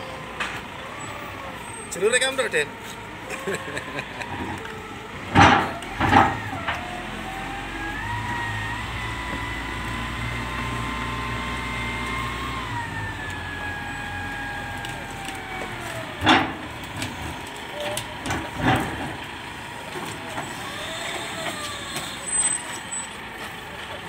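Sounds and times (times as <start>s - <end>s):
diesel engine rumbling: 0.0s - 24.0s.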